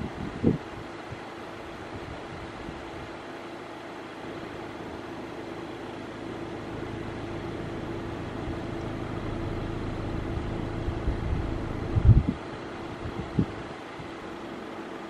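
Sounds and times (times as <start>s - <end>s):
car engine idling: 5.6s - 13.0s
low bumps: 8.8s - 12.4s.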